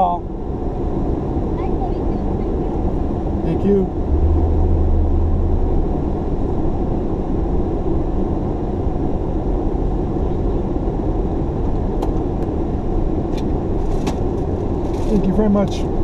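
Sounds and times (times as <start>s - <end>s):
road rumble: 0.0s - 16.0s
car engine running: 0.7s - 15.6s.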